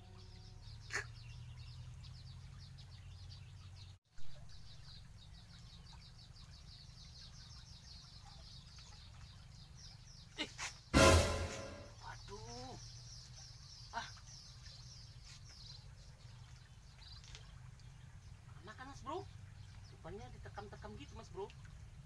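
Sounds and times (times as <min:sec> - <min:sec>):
short pop: 0:11.0 - 0:11.9.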